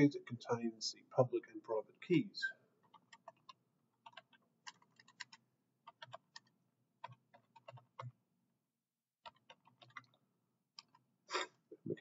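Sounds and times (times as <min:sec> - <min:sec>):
faint keyboard typing: 0:02.8 - 0:08.2, 0:09.1 - 0:11.1.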